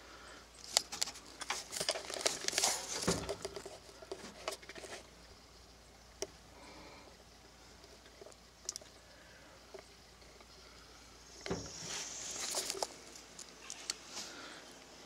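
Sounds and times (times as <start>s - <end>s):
handling clicks and rustles: 0.6s - 5.5s, 7.6s - 10.7s, 11.3s - 14.4s.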